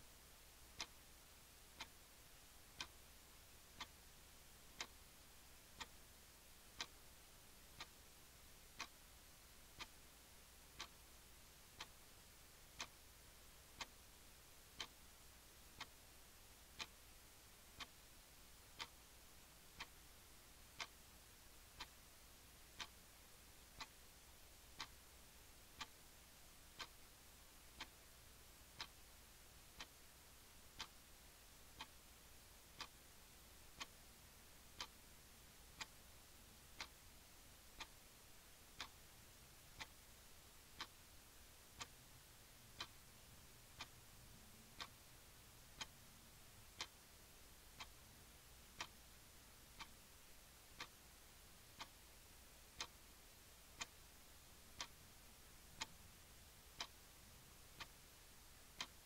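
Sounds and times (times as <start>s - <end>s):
clock ticking: 0.0s - 59.0s
faint hiss: 0.0s - 59.0s.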